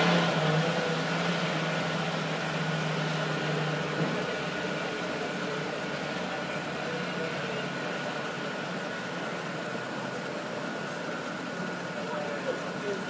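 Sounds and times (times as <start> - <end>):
engine idling hum: 0.6 - 13.0.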